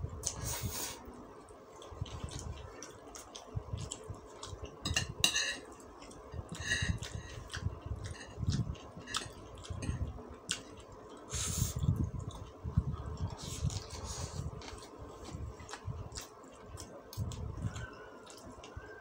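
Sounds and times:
chewing: 1.4s - 5.0s, 5.6s - 19.0s
cutlery scraping on ceramic plate: 4.9s - 5.7s.

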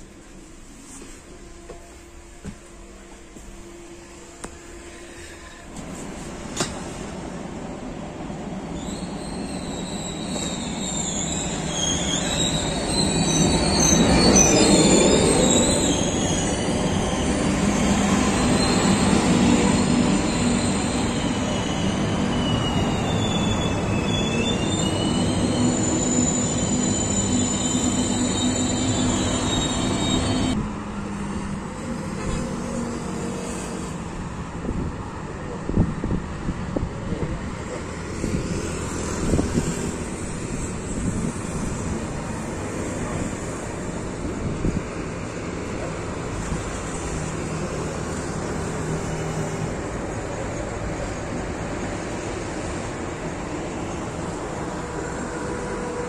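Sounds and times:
distant train running past: 0.0s - 56.0s
train rumbling into station: 0.0s - 56.0s
train brakes squealing: 8.7s - 30.6s.

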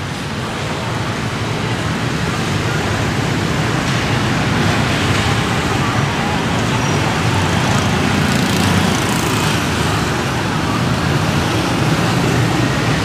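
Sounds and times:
street traffic: 0.0s - 13.0s
motorbikes and scooters passing: 4.5s - 13.0s.

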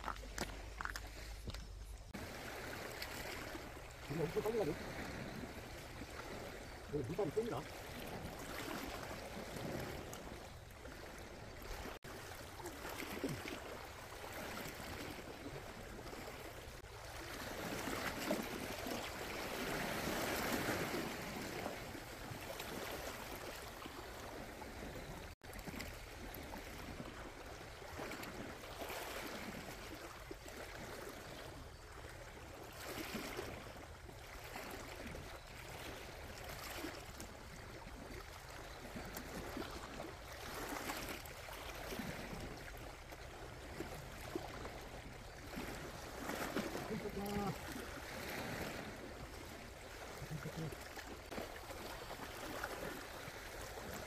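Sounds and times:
waves washing against rocky shore: 0.0s - 5.4s, 6.1s - 10.1s, 45.7s - 51.6s.

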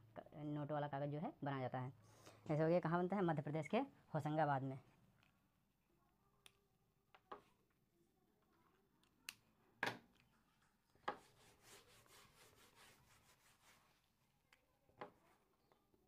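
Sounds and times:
hand wiping whiteboard: 11.1s - 14.2s.

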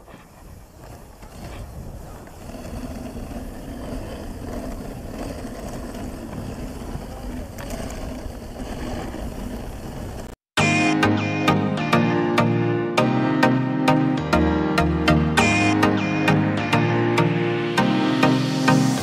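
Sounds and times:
wind rumble on microphone: 0.0s - 10.3s
sled runners hissing over snow: 0.0s - 10.4s.

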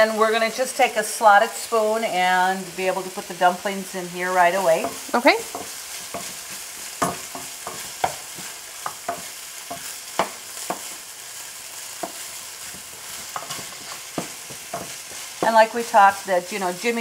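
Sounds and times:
meat and onion sizzling: 0.0s - 17.0s
spoon scraping pan: 4.4s - 16.3s.

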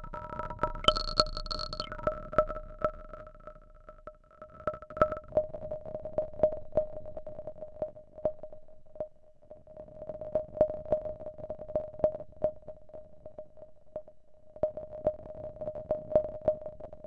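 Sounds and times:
steady ringing tone: 0.8s - 2.6s.

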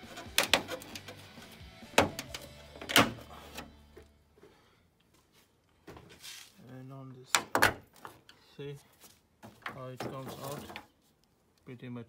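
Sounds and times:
faint background music: 0.0s - 4.8s.

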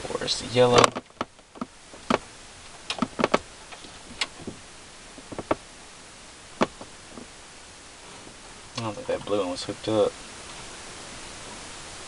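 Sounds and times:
small clicks and taps: 2.9s - 4.6s.

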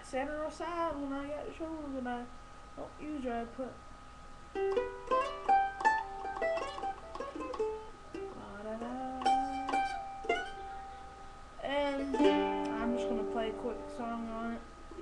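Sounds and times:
mandolin picking: 4.5s - 15.0s.

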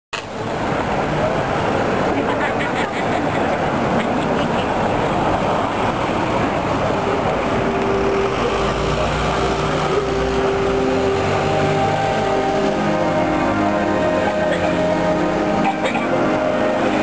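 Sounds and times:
cars passing: 0.2s - 17.0s
brass band playing held notes: 6.9s - 17.0s.

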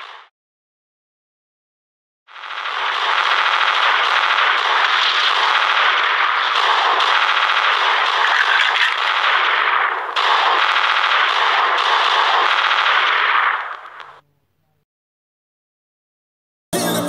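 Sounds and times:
rapid machine-gun fire: 2.3s - 14.2s.

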